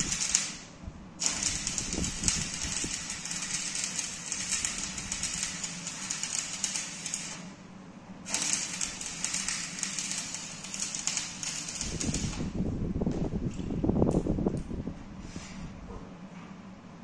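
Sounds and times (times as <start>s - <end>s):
arc welding crackle: 0.0s - 7.6s, 8.2s - 12.6s.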